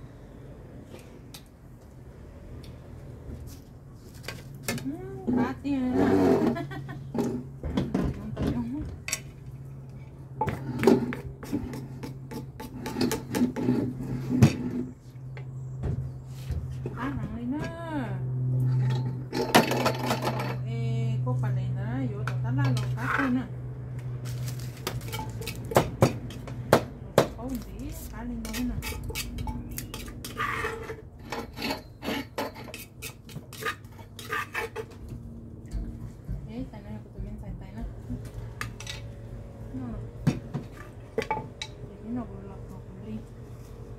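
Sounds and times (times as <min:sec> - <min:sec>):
spoon scraping clay mortar: 0:09.9 - 0:15.0, 0:27.5 - 0:35.0.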